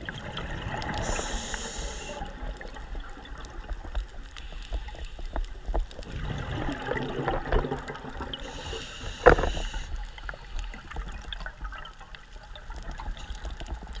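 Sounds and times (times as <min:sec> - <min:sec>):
exhaled bubbles gurgling: 0:00.0 - 0:14.0
regulator inhalation hiss: 0:01.0 - 0:02.4, 0:08.4 - 0:10.5.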